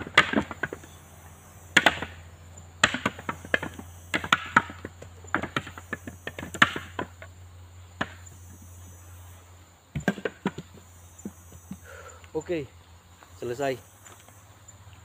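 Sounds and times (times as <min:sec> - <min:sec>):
coconuts knocking together: 0:00.0 - 0:01.1, 0:01.7 - 0:02.2, 0:02.8 - 0:07.3.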